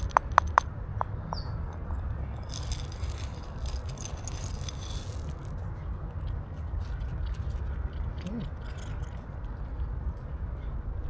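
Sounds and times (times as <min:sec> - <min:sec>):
plastic cup tapping on stone: 0:00.0 - 0:01.5
dry pellets pattering onto stone: 0:02.4 - 0:05.6.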